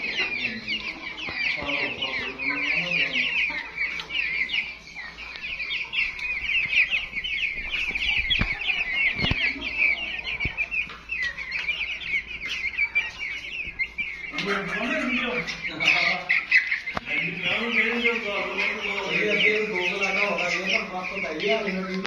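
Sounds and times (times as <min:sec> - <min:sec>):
chicks peeping: 0:00.0 - 0:22.0.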